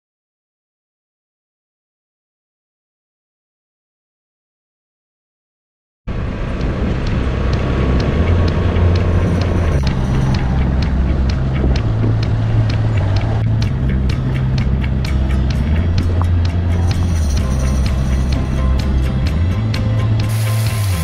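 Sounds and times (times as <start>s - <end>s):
quad bike engine running: 6.1s - 21.0s
sharp ticks: 6.1s - 21.0s.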